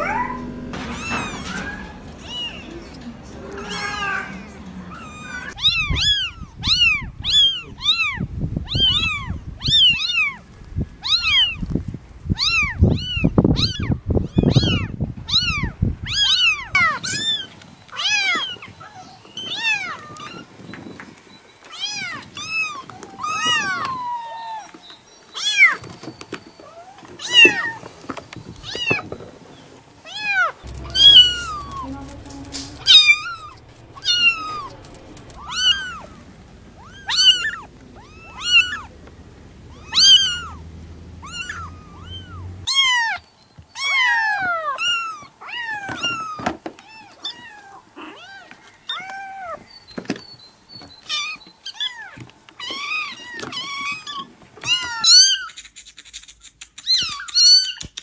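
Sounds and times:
kittens meowing: 0.0 - 10.4, 39.7 - 40.6
low background rumble: 30.6 - 42.7.

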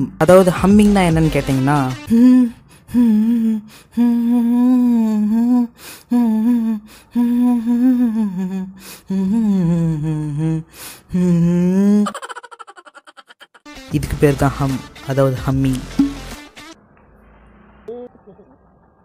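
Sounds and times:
man humming: 2.0 - 12.3.

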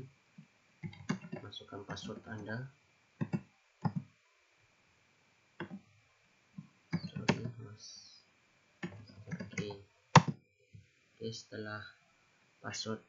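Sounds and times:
keyboard keystrokes: 0.8 - 1.4, 6.9 - 7.5, 8.8 - 10.4
computer mouse clicks: 0.8 - 2.4, 3.2 - 4.1, 6.9 - 7.6, 8.8 - 10.4.

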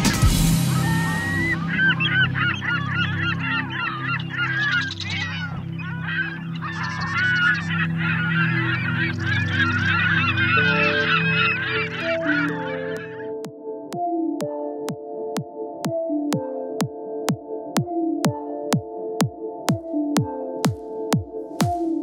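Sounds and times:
geese honking: 0.0 - 13.4
melody of stepped notes: 10.5 - 22.0.

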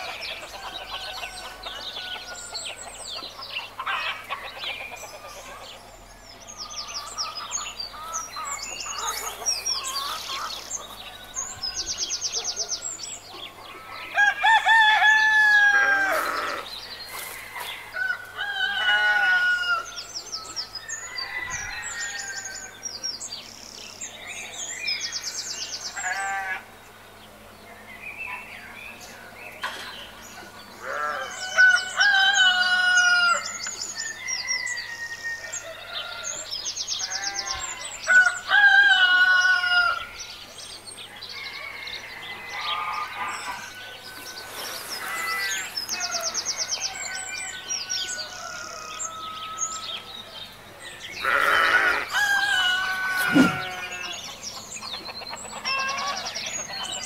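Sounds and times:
roosters crowing: 0.0 - 5.8, 6.4 - 23.4, 25.0 - 26.8, 30.0 - 50.4, 51.0 - 57.0
small birds chirping: 0.0 - 14.5, 39.4 - 57.0
hens clucking: 7.0 - 11.5, 51.2 - 57.0.

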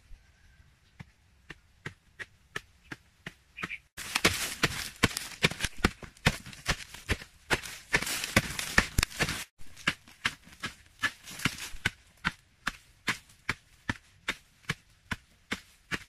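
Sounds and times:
digging stick striking dry earth: 0.9 - 16.0
soil scraping and scattering: 3.6 - 16.0.

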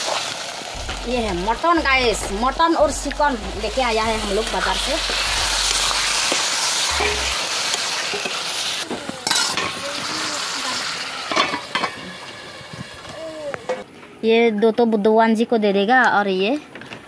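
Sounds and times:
meat sizzling in hot oil: 0.0 - 2.8, 3.6 - 13.1.

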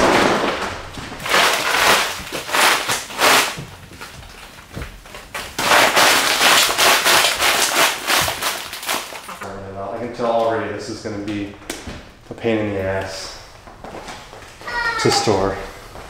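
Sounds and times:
plastic sheeting crackling and rustling: 0.0 - 10.6.

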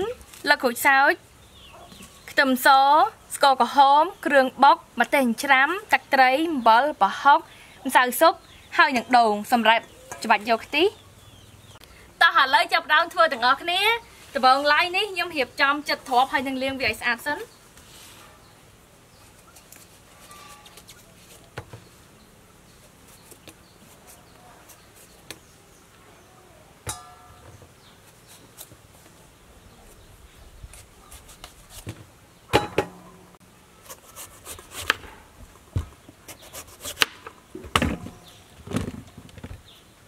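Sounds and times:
knocks on a steel bowl: 26.9 - 27.6.

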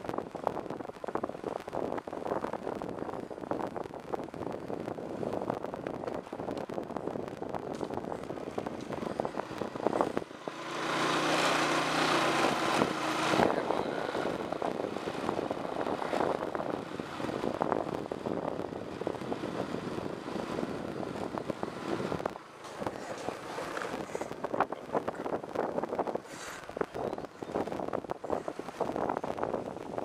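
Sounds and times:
scooter engine drone: 0.0 - 30.0
wind on microphone: 0.0 - 30.0.

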